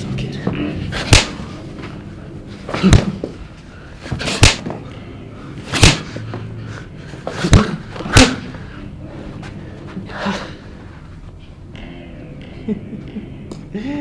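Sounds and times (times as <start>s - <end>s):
punches thudding on a body: 1.0s - 1.4s, 2.7s - 3.3s, 4.1s - 4.8s, 5.7s - 6.1s, 7.3s - 8.5s.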